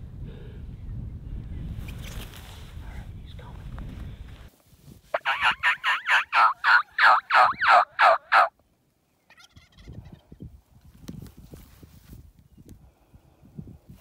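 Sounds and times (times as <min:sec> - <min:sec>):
turkey calling: 0:05.1 - 0:08.6.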